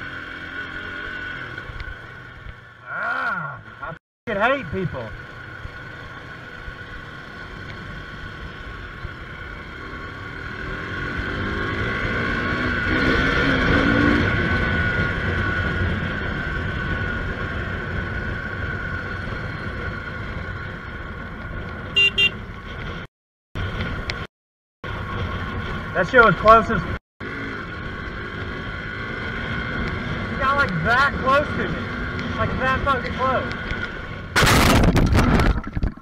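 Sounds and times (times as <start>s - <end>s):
vehicle engine and road noise: 0.0s - 36.0s
car horn toots: 21.9s - 22.4s.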